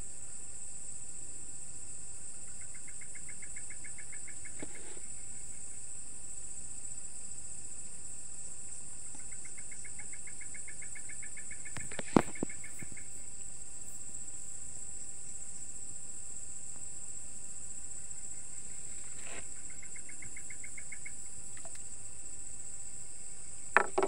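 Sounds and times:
crickets chorus: 0.0 - 24.0
sharp knock: 23.8 - 24.0.

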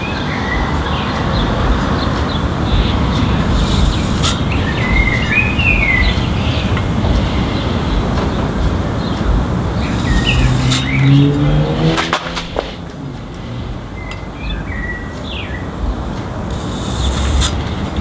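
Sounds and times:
bird chirps: 0.0 - 12.8
steady background noise: 0.0 - 18.0
vehicle engine passing: 0.0 - 18.0.

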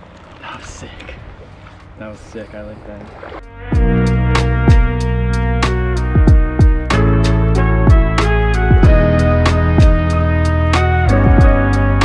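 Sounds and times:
held chords: 3.4 - 12.0
drum hits: 3.8 - 5.0, 6.2 - 7.0, 7.9 - 10.2, 11.2 - 11.7.

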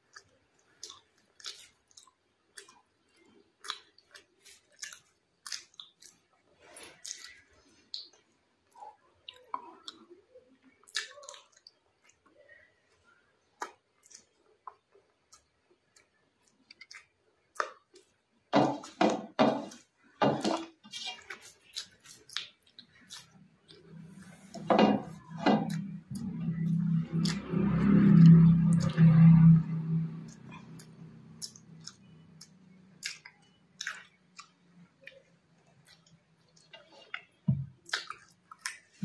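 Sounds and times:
mouth eating sounds: 0.0 - 12.6, 20.4 - 39.0
low hum: 23.7 - 32.9.

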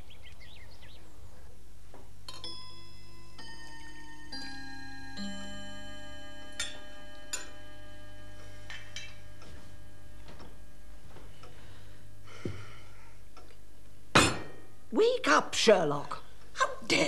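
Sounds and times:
clock chiming: 2.3 - 11.9
tableware clinking: 6.3 - 10.4.

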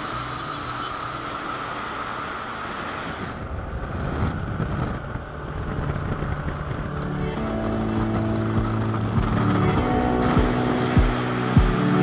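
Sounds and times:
motorcycle engine: 0.0 - 12.0
road noise: 0.0 - 12.0
wind rushing over microphone: 1.9 - 12.0.

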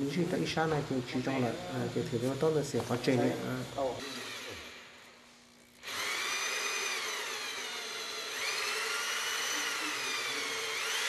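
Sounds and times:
electric drill boring into wood: 3.5 - 11.0.

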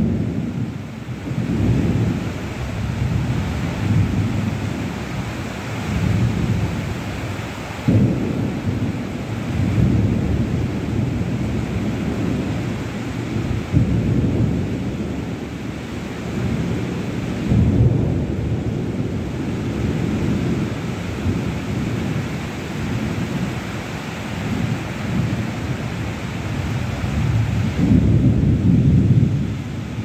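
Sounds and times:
heavy rain pouring: 0.0 - 30.0.

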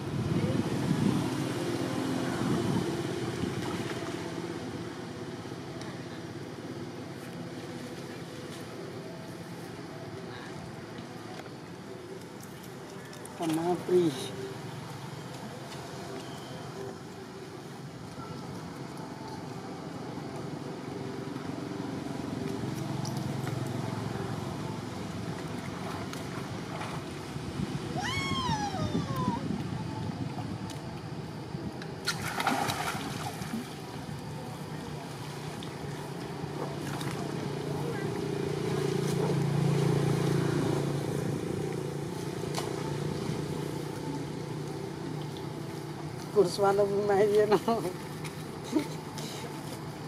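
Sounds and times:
passing vehicle engine rumble: 36.2 - 46.6.

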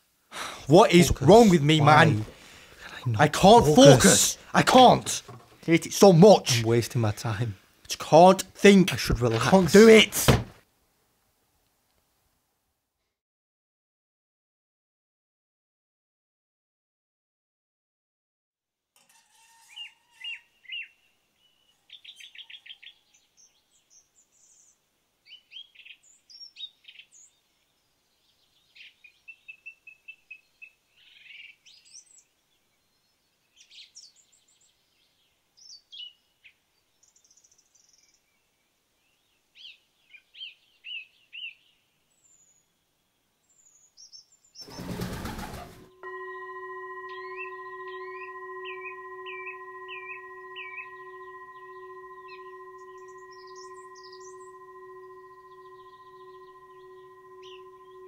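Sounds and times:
steady ringing tone: 44.7 - 58.0
songbirds chirping and singing: 47.0 - 58.0.

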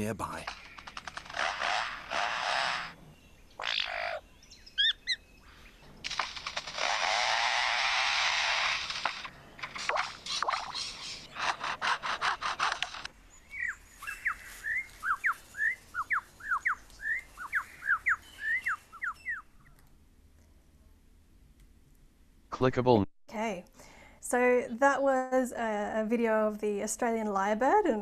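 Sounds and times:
bird mimicking chainsaw buzzing: 0.6 - 3.0, 6.3 - 9.3.

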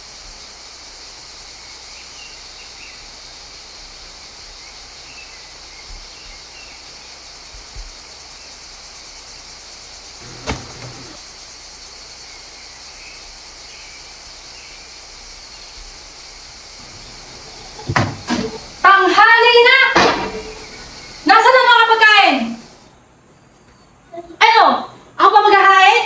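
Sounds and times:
faint chirps: 0.0 - 24.4
high background hiss: 0.0 - 26.0
sharp knock: 10.2 - 11.2
soft thumps: 10.2 - 11.2, 17.0 - 18.8.

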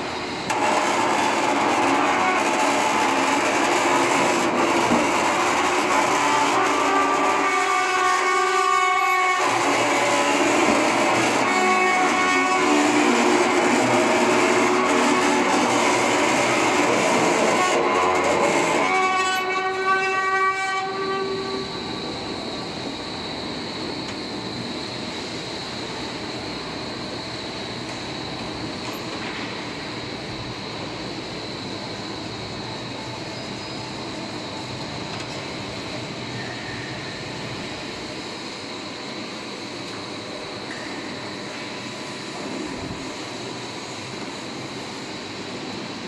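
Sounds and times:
roll forming machine running: 0.0 - 20.3
pitched machine squeal: 0.6 - 22.7, 36.2 - 37.5.

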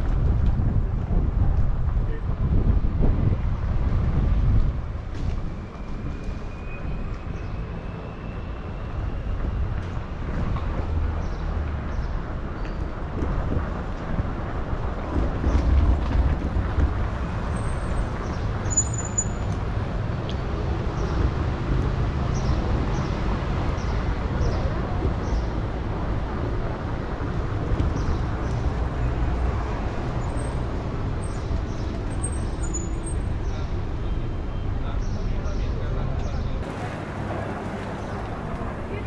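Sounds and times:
wind buffeting microphone: 0.0 - 6.4, 9.3 - 18.6
traffic rumble: 0.0 - 39.0.

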